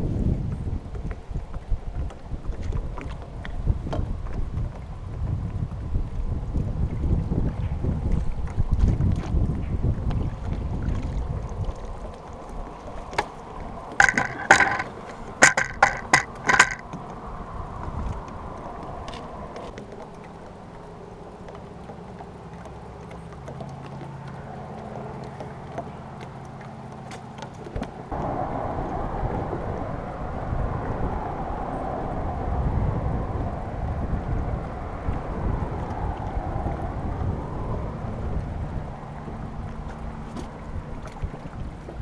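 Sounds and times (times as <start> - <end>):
wind and water noise: 0.0 - 42.0
net and fish knocking on boat: 13.9 - 17.0.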